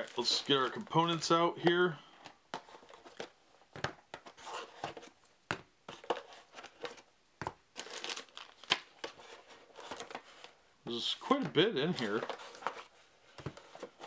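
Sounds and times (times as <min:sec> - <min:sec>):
plastic bags crinkling: 0:07.8 - 0:09.0.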